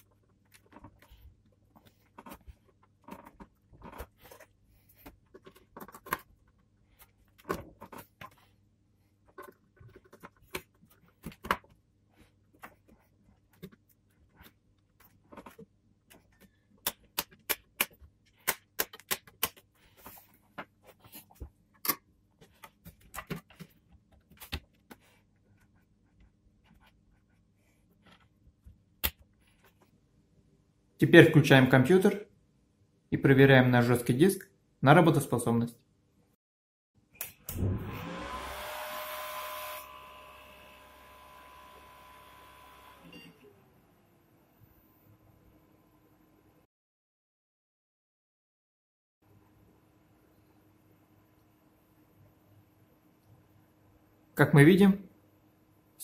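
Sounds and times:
hands handling computer components: 0.0s - 27.2s.

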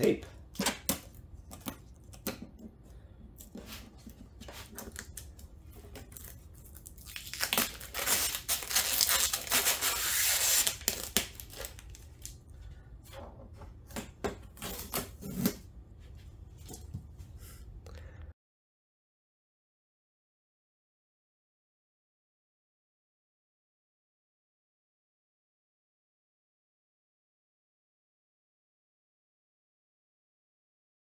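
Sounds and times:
tape ripping off plastic: 4.7s - 12.4s, 14.6s - 15.6s
long tape peel: 4.9s - 12.4s.

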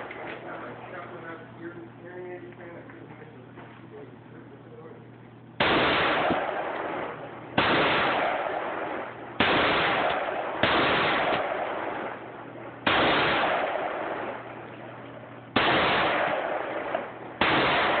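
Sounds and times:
rifle shots echoing: 0.0s - 1.4s, 5.6s - 18.0s.

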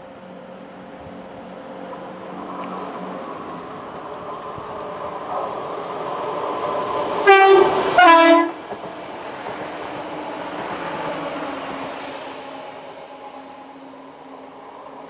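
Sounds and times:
train rolling past: 0.0s - 15.0s
train two-tone horn: 7.2s - 8.6s.

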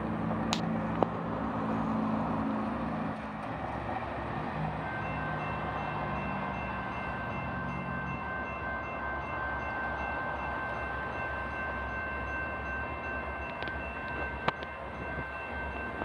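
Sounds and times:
crossing warning bell ringing: 4.3s - 16.0s.

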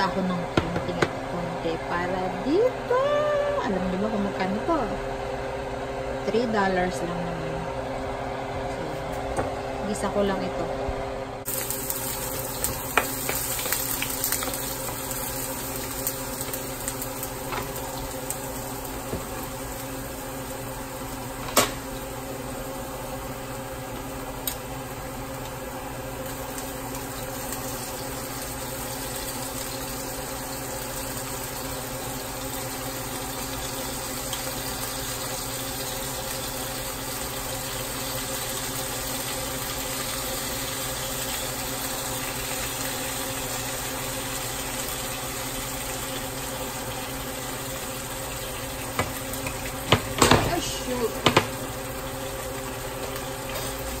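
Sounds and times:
food sizzling in a frying pan: 11.4s - 54.0s.

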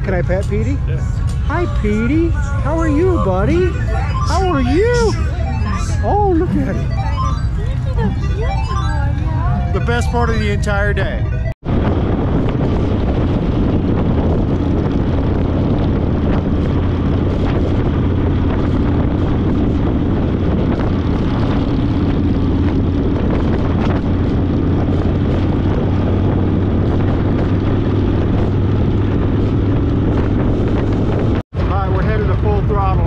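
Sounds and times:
motorcycle engine cruising: 0.0s - 33.0s
wind on microphone: 11.0s - 33.0s.

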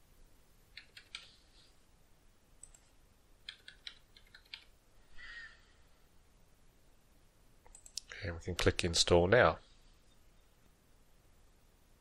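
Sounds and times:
soft hiss: 0.0s - 12.0s
faint keyboard typing: 0.7s - 1.4s, 2.6s - 4.8s, 7.6s - 8.8s.

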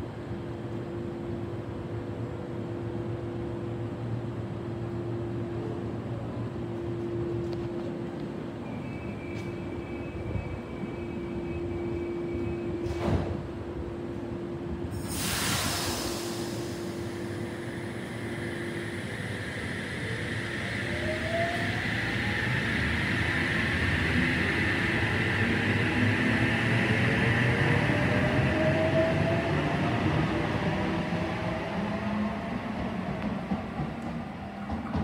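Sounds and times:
sharp hiss of air: 14.9s - 19.9s.

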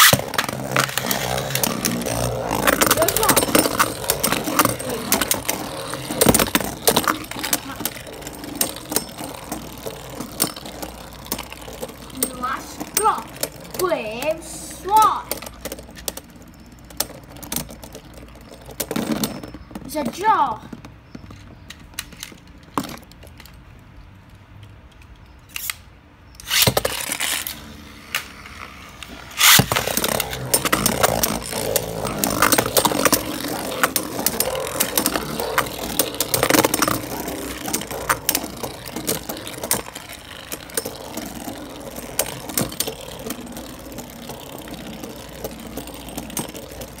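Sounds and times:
spinning tops rattling and colliding: 0.0s - 19.7s, 26.4s - 47.0s.

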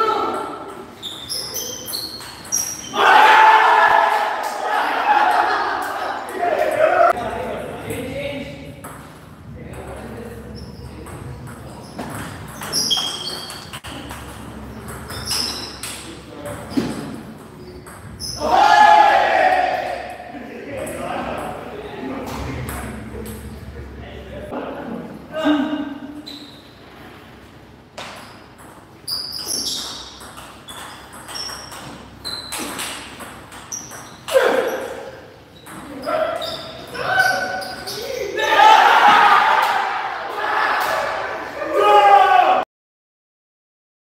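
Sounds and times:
shoe squeaks: 0.9s - 3.0s, 10.5s - 11.0s, 11.7s - 14.1s, 15.0s - 18.4s, 26.2s - 26.8s, 28.2s - 33.0s, 33.6s - 38.3s.

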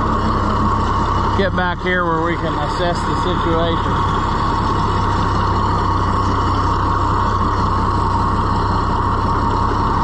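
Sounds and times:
tractor engine running: 0.0s - 10.0s.

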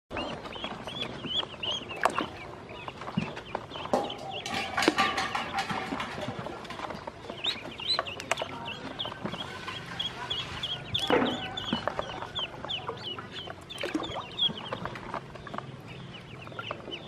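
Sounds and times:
ducklings peeping: 0.1s - 17.0s
water splashing in basin: 1.8s - 2.5s, 7.6s - 15.7s.

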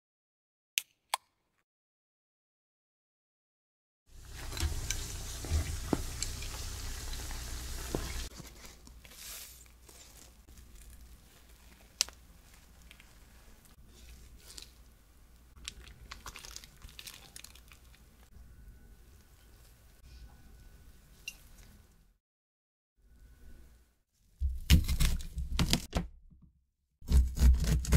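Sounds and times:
oil sizzling with pops: 4.1s - 8.3s
doughnut tearing and crackling: 9.8s - 14.8s, 15.6s - 18.0s.

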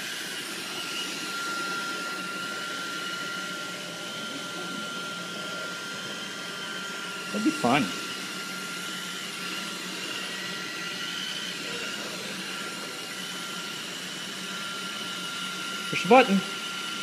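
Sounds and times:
robot vacuum cleaner humming: 0.0s - 17.0s.

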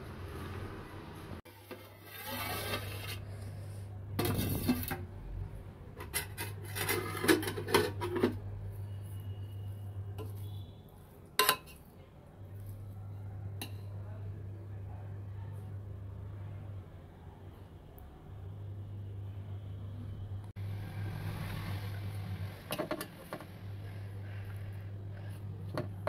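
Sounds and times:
metal spoon scraping a metal pot: 1.5s - 3.4s, 4.2s - 5.0s, 6.0s - 8.4s, 10.2s - 10.6s, 11.4s - 11.8s.

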